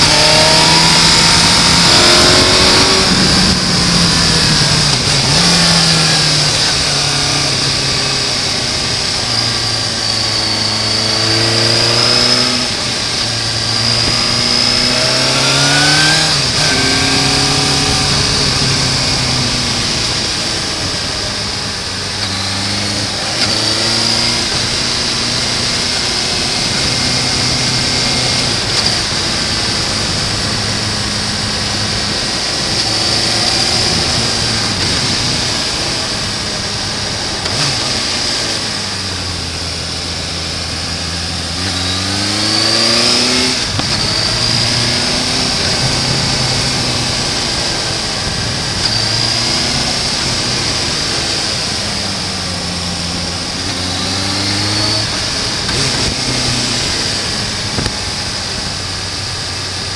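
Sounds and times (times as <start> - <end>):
wind rushing: 0.0 - 9.1
motorcycle engine running: 0.0 - 59.9.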